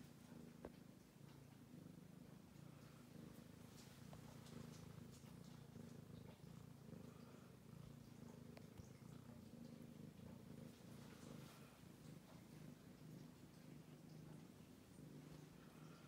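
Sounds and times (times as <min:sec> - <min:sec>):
cat purring: 0:00.0 - 0:16.0.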